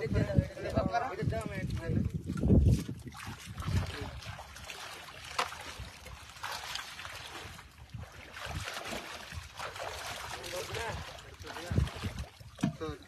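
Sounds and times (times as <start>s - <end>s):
pond water splashing: 1.7s - 13.0s.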